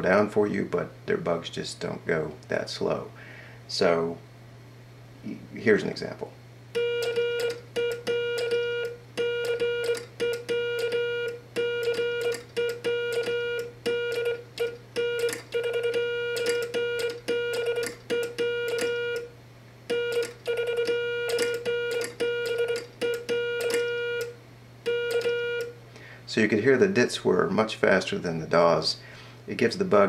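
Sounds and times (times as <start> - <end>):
morse code tone: 6.8 - 19.3, 19.9 - 25.8
telegraph key clicks: 14.1 - 19.0, 20.1 - 23.9.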